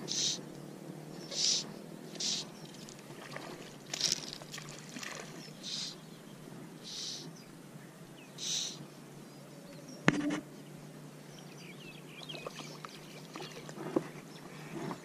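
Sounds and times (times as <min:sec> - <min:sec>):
fly line swishing: 0:00.0 - 0:00.4, 0:01.3 - 0:05.9
small birds chirping: 0:00.0 - 0:15.0.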